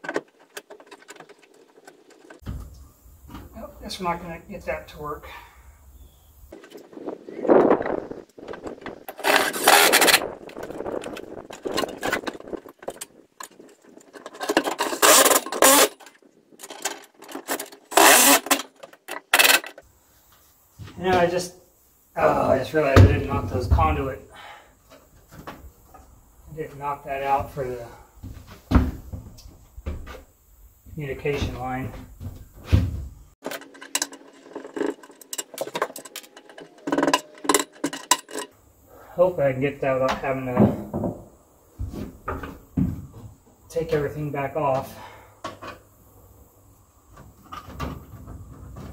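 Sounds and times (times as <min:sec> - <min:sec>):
metal parts scraping and rattling: 0:00.0 - 0:02.4, 0:06.5 - 0:19.9, 0:33.4 - 0:38.6
tools clinking in toolbox: 0:33.4 - 0:38.5.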